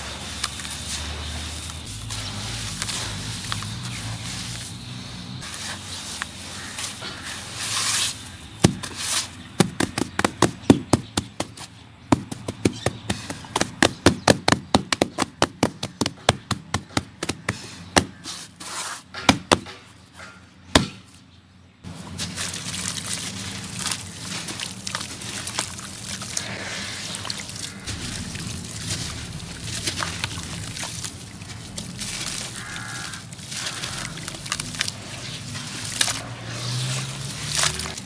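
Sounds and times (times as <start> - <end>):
hands crumbling dry mixture: 0.0 - 4.8, 22.0 - 38.0
hands patting mixture: 0.0 - 18.4, 21.9 - 38.0.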